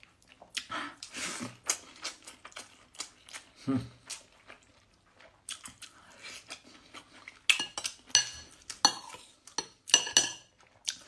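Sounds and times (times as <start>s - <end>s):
cutlery clinking on a plate: 7.6s - 10.5s.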